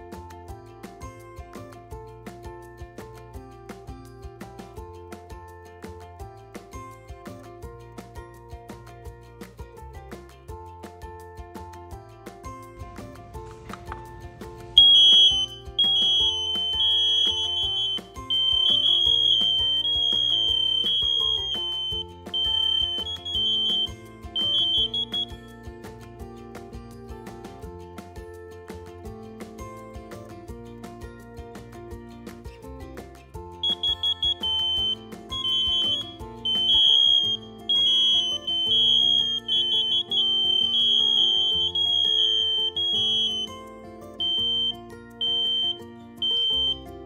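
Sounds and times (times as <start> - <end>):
background music: 0.0 - 47.0
high-pitched alarm beeping: 14.8 - 25.3, 33.6 - 43.5, 44.2 - 46.8.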